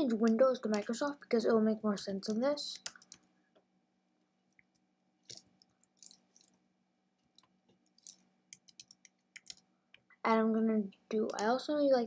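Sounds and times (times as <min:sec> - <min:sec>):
keyboard keys clicking: 0:07.9 - 0:09.6.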